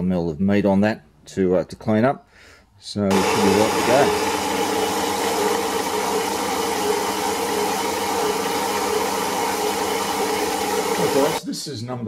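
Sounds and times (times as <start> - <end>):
bandsaw cutting metal bar: 3.1 - 11.4.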